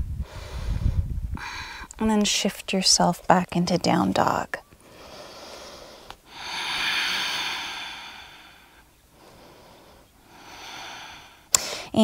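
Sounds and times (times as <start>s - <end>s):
woman breathing: 0.1s - 1.9s, 4.8s - 12.0s.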